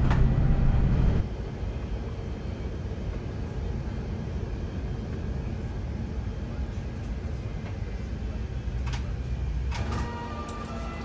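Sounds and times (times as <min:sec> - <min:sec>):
low rumble in aircraft cabin: 0:00.0 - 0:11.0
background music with held notes: 0:09.8 - 0:11.0.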